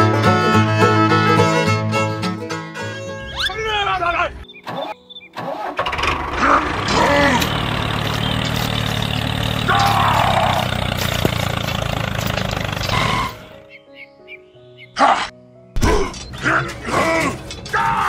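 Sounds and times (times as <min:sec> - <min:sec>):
diesel tractor engine running: 0:04.9 - 0:13.7.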